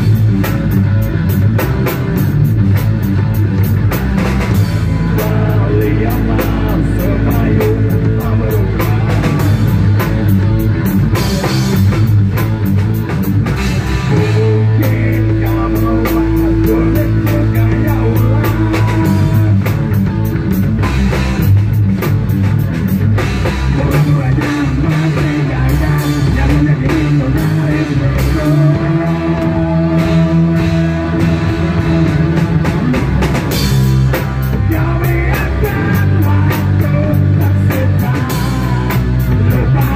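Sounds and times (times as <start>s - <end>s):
bass guitar: 0.0s - 39.9s
drum kit: 0.0s - 39.9s
electric guitar: 0.0s - 39.9s
person singing: 4.8s - 9.7s, 14.1s - 19.8s, 23.7s - 32.4s, 34.5s - 39.9s.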